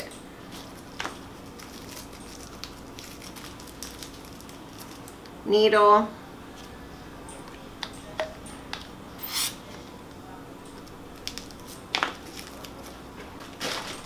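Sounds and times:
wrapping rustle: 0.5 - 5.3, 11.2 - 14.0.

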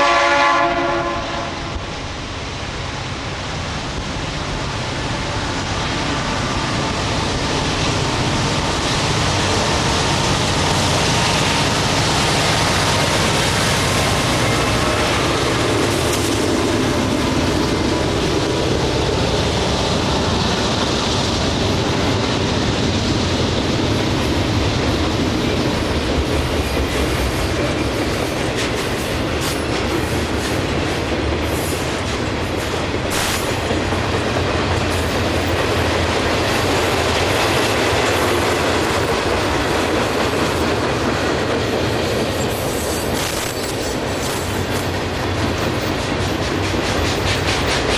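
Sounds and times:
freight train wheels on rails: 0.0 - 47.9
train wheel squeals and clanks: 41.8 - 47.9.

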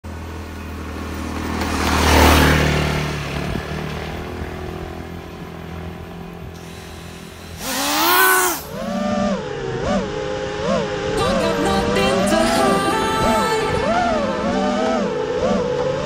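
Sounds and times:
low engine hum: 0.0 - 16.0
vehicle passing: 0.0 - 16.0.

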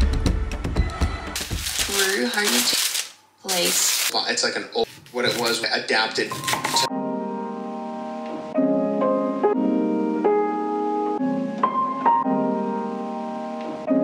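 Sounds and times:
soft instrumental music: 6.3 - 14.0.

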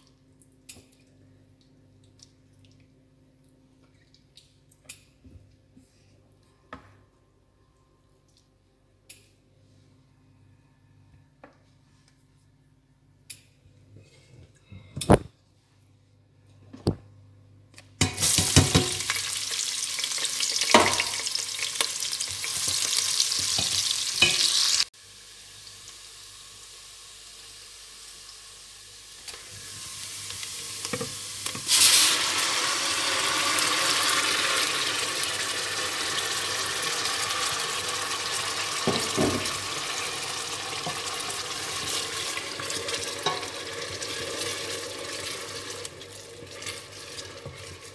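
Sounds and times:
vegetables sizzling in hot oil: 18.0 - 47.9.

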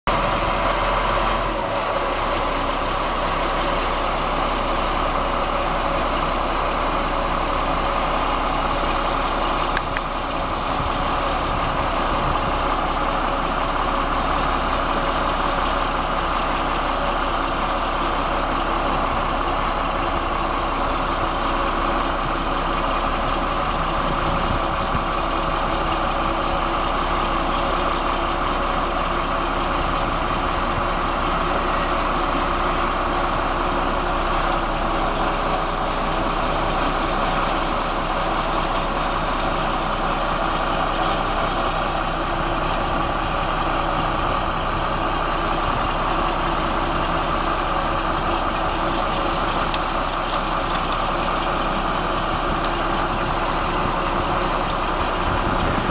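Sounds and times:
bulldozer diesel engine idling: 0.0 - 55.9.

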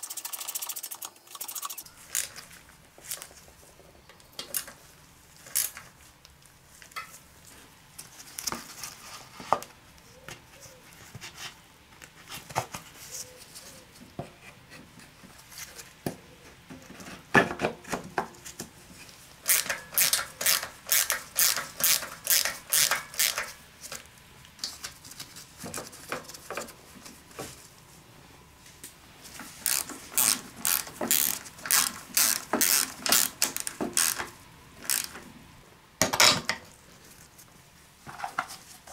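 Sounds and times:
ratchet wrench clicking: 19.5 - 23.5, 29.6 - 35.2.

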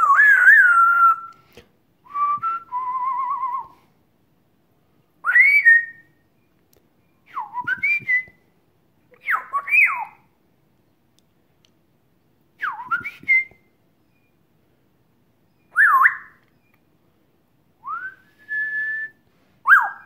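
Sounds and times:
parrot whistling: 0.0 - 1.4, 5.2 - 6.1, 9.2 - 10.2, 15.6 - 16.7, 17.8 - 20.0.

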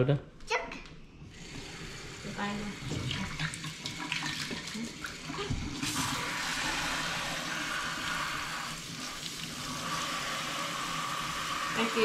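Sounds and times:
faucet running into sink: 1.3 - 12.0.

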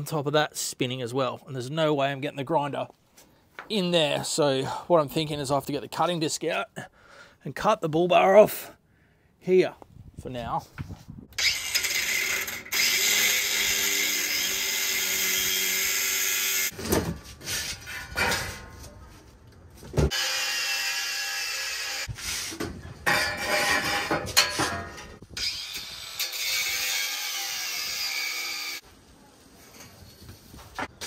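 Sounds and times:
angle grinder cutting metal: 11.4 - 16.7, 20.1 - 22.2, 25.4 - 28.8.

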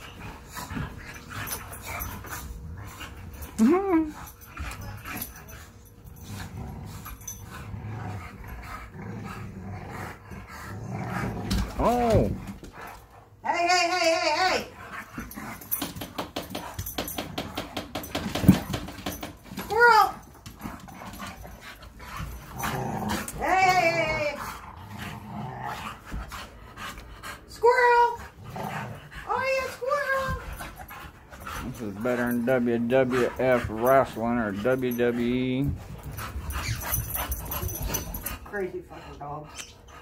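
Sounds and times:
dogs play growling: 0.0 - 40.0
dogs snuffling: 29.0 - 40.0.

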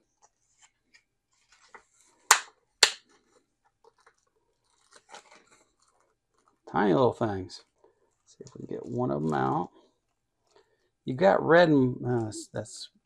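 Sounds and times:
plastic packaging crinkling: 1.4 - 6.7
sharp plastic crackles: 1.4 - 6.7.

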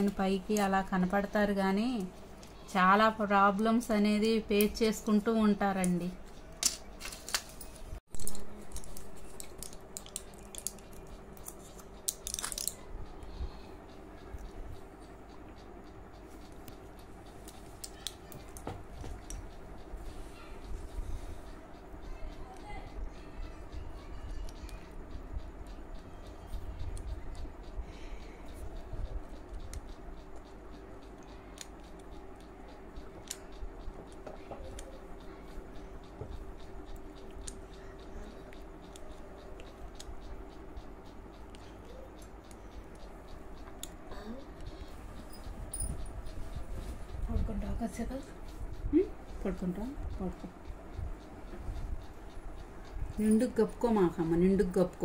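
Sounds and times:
faint steady hum: 0.0 - 55.0
blister pack crackling: 8.2 - 12.8.

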